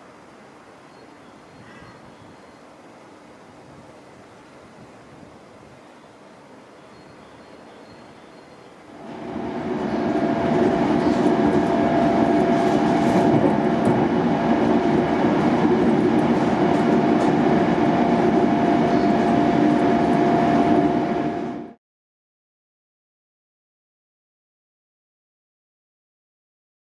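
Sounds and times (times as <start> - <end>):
thin steady whine: 6.8 - 21.8
train wheels rumbling on rails: 9.0 - 21.8.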